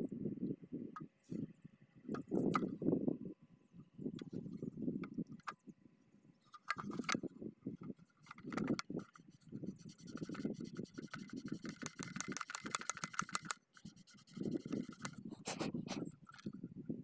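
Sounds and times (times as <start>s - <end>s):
handling noise bumping and scraping: 2.1s - 2.9s, 6.4s - 16.7s
scratchy clicks: 7.8s - 15.3s.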